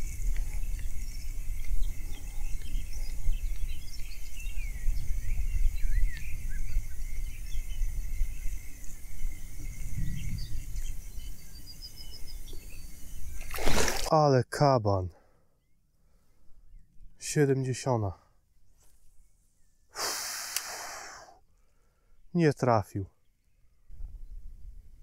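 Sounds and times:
wind noise on microphone: 0:00.0 - 0:14.1, 0:23.8 - 0:25.0
small birds chirping: 0:00.0 - 0:24.7.

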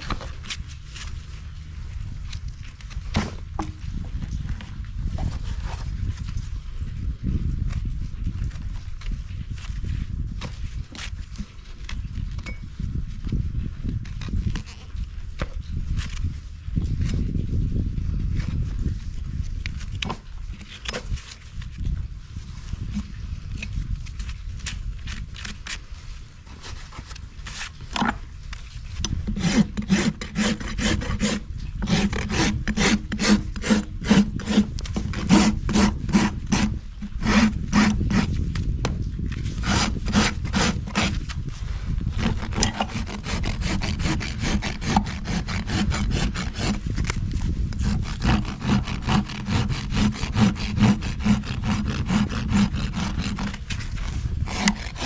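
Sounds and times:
hoof rasp strokes: 0:28.6 - 0:38.5, 0:39.3 - 0:55.0.

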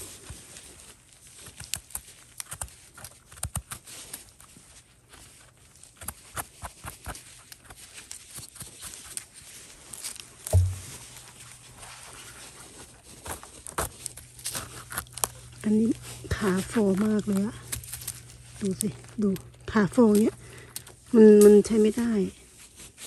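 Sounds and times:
twigs snapping: 0:01.4 - 0:04.4, 0:13.2 - 0:21.8
footsteps in dry leaves: 0:07.2 - 0:23.0
low thump: 0:10.5 - 0:11.1.

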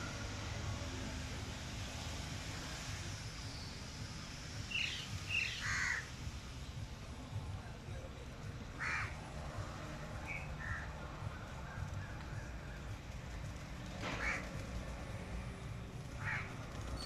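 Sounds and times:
crows cawing: 0:05.4 - 0:06.1, 0:08.8 - 0:09.2, 0:10.6 - 0:10.9, 0:14.1 - 0:14.6, 0:16.2 - 0:16.6
steady low rumble: 0:06.1 - 0:13.9.

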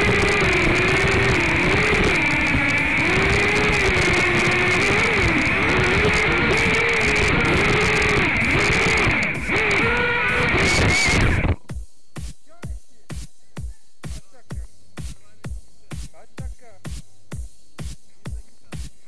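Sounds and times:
quadcopter motors whining: 0:00.0 - 0:11.6.

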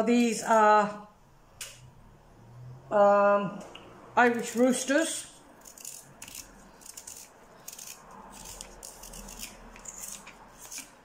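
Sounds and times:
knife scraping potato skin: 0:04.3 - 0:04.9, 0:05.6 - 0:11.0.

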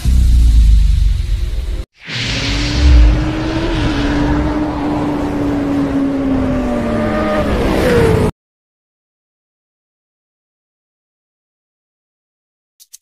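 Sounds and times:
engine sound effect: 0:00.0 - 0:08.3.

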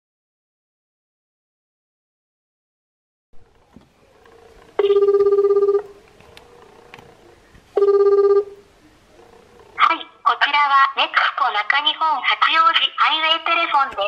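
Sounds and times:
warbling telephone ringback tone: 0:04.8 - 0:06.0, 0:07.8 - 0:08.6.

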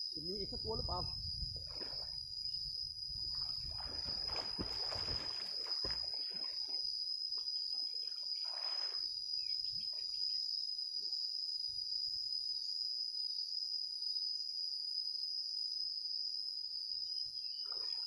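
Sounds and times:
water splashing and sloshing: 0:01.5 - 0:02.3, 0:03.2 - 0:06.9, 0:07.7 - 0:09.1.

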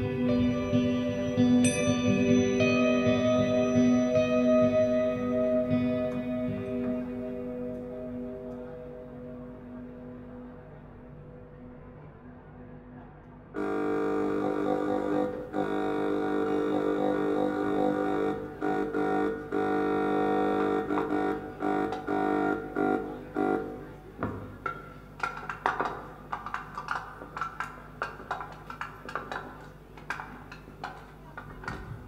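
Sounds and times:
acoustic ensemble music: 0:00.0 - 0:10.6.

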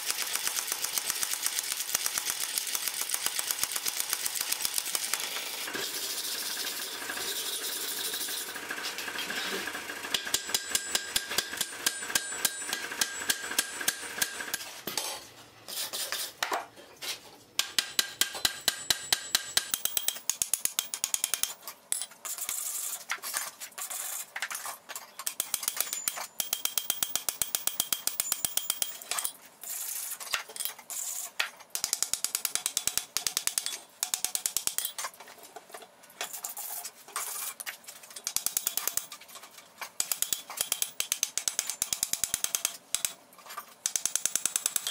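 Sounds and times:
hammer ringing on anvil: 0:10.2 - 0:14.4, 0:17.8 - 0:20.1.

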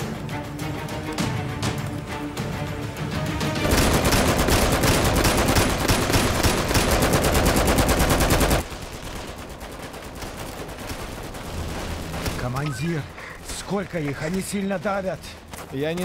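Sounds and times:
tense background music: 0:00.0 - 0:16.0
automatic rifle fire: 0:03.6 - 0:08.6.

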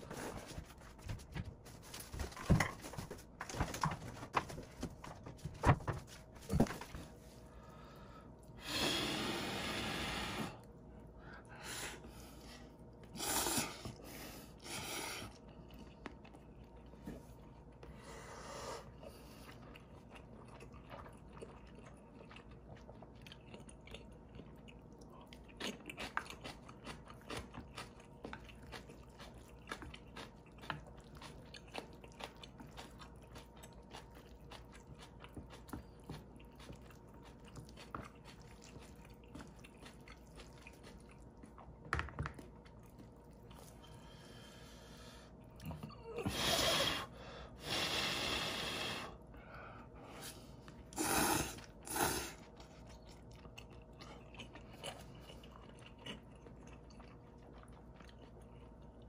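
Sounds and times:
chewing: 0:15.2 - 0:17.9, 0:18.9 - 0:44.2, 0:50.4 - 0:59.0
slurping noodles: 0:50.9 - 0:52.5.

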